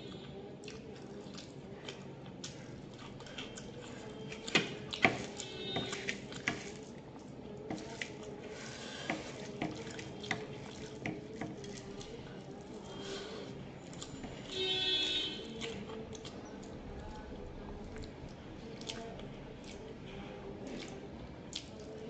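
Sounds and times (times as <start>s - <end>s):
hand squishing rice: 7.7s - 11.0s.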